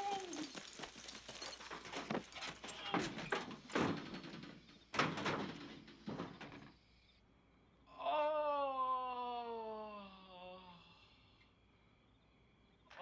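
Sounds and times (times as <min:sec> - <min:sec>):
hurried footsteps: 0:00.0 - 0:06.7
sheet-metal door banging shut: 0:01.8 - 0:06.8.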